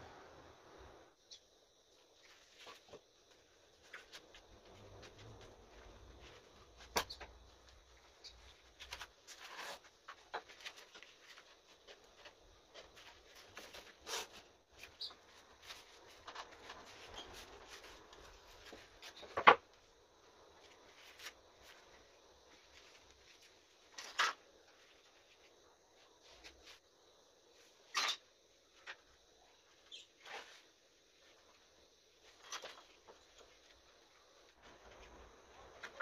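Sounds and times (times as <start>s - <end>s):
knocks and clicks of objects handled: 18.1s - 19.8s.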